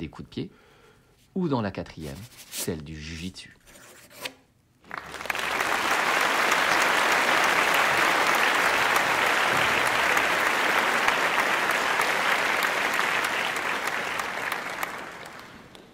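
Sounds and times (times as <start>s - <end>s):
crowd applauding: 4.8s - 15.9s.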